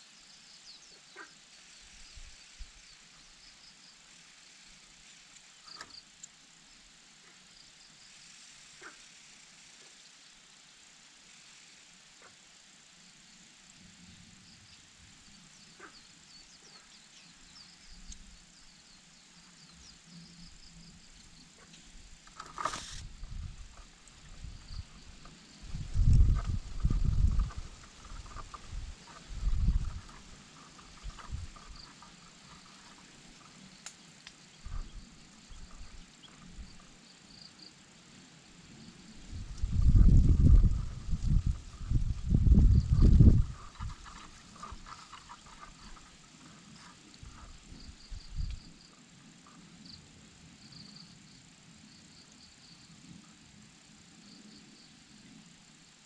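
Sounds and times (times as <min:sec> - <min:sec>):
low steady hiss: 0:00.0 - 0:56.0
small birds chirping: 0:14.5 - 0:37.8.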